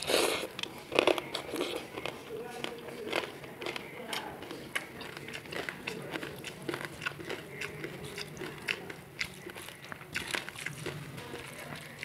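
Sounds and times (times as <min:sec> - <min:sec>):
chewing mouth clicks: 0:00.0 - 0:12.0
fingers mixing rice on a plate: 0:00.0 - 0:12.0.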